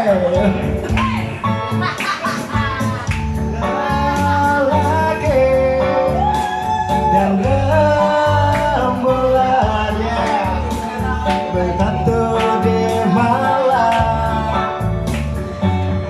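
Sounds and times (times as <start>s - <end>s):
person singing into a microphone: 0.0s - 1.4s, 3.6s - 15.0s
guitar: 0.0s - 16.0s
steady bass line: 0.0s - 16.0s.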